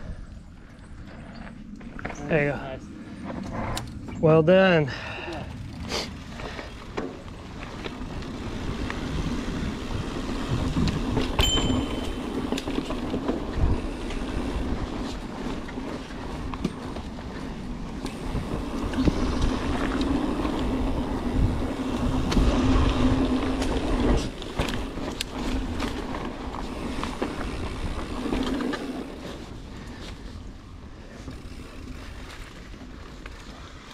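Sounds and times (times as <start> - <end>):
bike tyres rolling over dirt: 0.0 - 33.9
bike knocks and rattles: 10.3 - 14.3.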